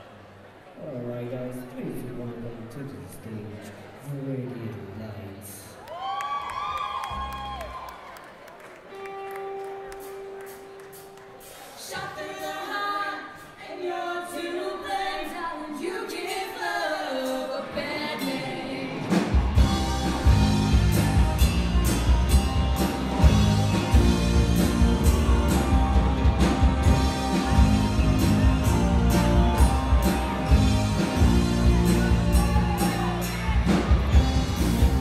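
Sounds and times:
rock band playing: 8.9s - 11.7s, 18.9s - 35.0s
women singing in harmony: 12.0s - 19.1s.

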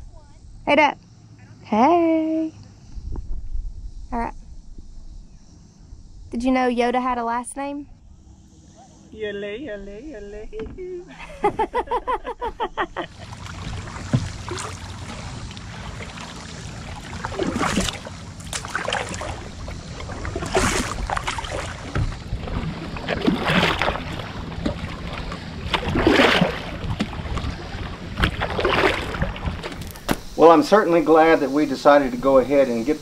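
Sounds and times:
paddle strokes swishing water: 13.1s - 30.3s.

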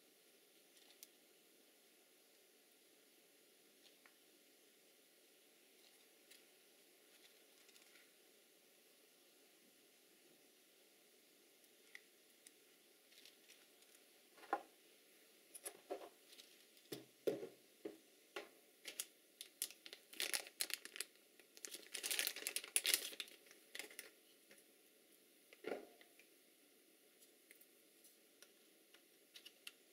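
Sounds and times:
plastic packaging crinkling: 7.1s - 8.1s, 13.1s - 14.6s, 15.6s - 17.0s, 18.8s - 24.3s, 29.3s - 29.8s.

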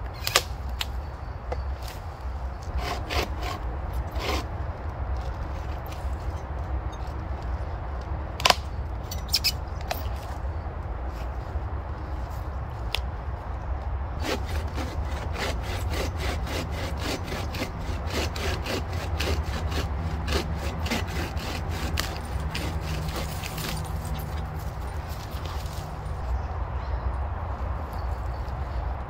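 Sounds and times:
bow saw cutting log: 2.6s - 4.5s, 14.2s - 24.2s.

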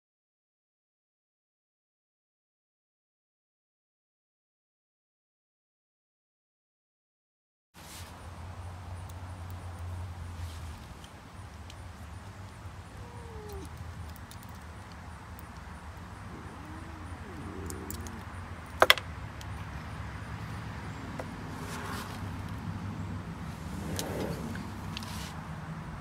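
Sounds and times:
soft rustling: 7.8s - 8.2s, 23.4s - 25.5s
low outdoor hum: 7.8s - 26.0s
faint wavering calls: 12.5s - 14.4s, 15.5s - 18.7s, 23.4s - 25.3s.

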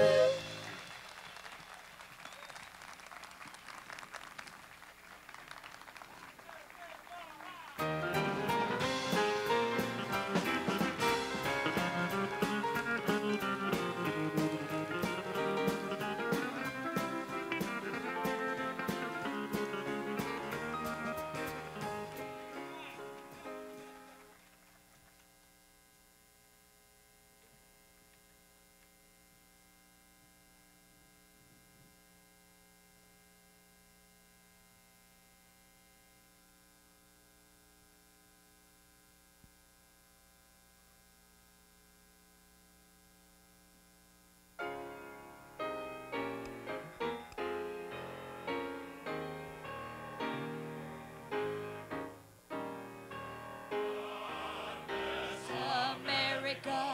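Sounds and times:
piano notes: 0.0s - 0.8s, 7.8s - 24.3s, 44.6s - 56.9s
music: 0.0s - 1.0s, 7.8s - 24.3s, 44.6s - 56.9s
electrical mains hum: 6.5s - 56.9s.

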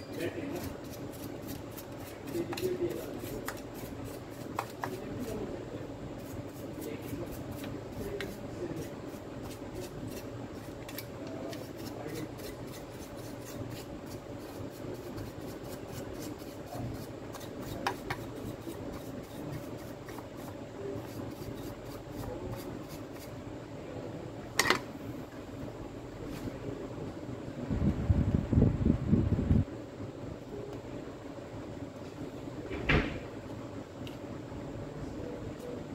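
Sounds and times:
brush scrubbing plastic: 0.1s - 5.4s, 6.2s - 23.3s.

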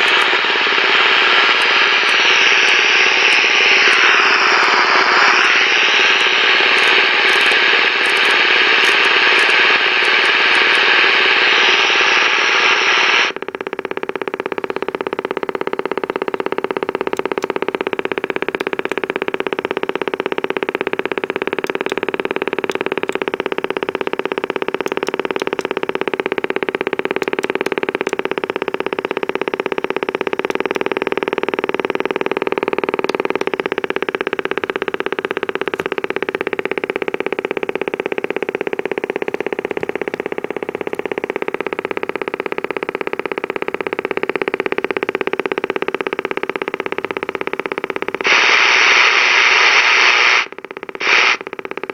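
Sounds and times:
fast pulsing buzz: 0.0s - 51.9s
speaker hiss: 48.2s - 51.5s.

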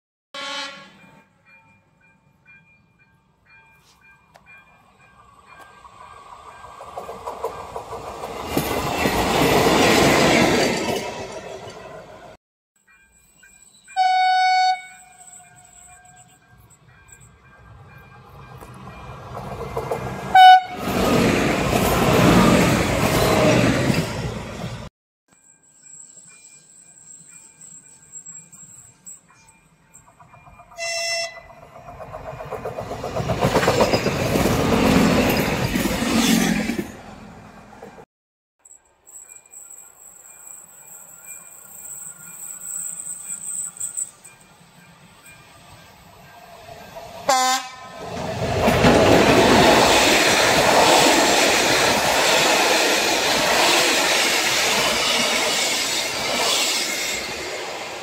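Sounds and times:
train horn blast: 0.4s - 1.1s, 14.0s - 15.8s, 20.2s - 21.0s, 30.8s - 31.5s, 47.3s - 48.0s
passenger train passing: 0.4s - 24.9s, 26.2s - 38.0s, 39.6s - 58.0s.

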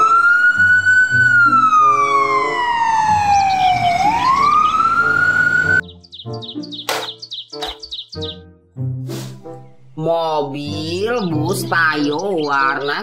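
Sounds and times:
ambulance siren wailing: 0.0s - 6.6s
background music: 0.0s - 13.0s
birds chirping: 1.5s - 8.6s, 9.4s - 13.0s.

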